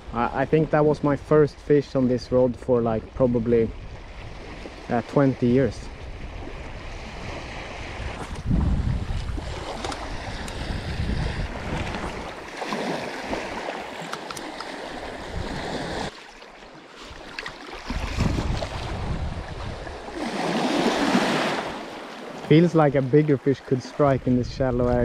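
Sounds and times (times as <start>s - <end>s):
small waves splashing: 3.0s - 24.4s
wave breaking and foaming: 4.9s - 24.4s.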